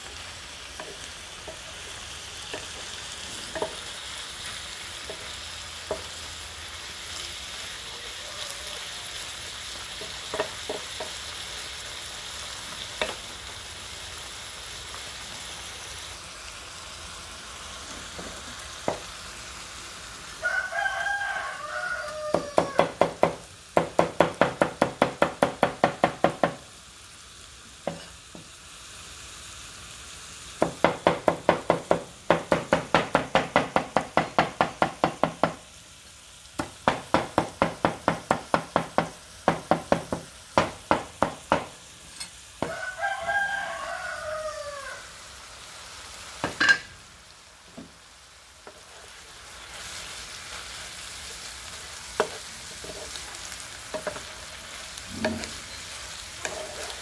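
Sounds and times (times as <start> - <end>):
food sizzling in a pan: 0.0 - 57.0
rooster crowing: 7.8 - 9.3, 20.3 - 23.2, 42.6 - 45.3.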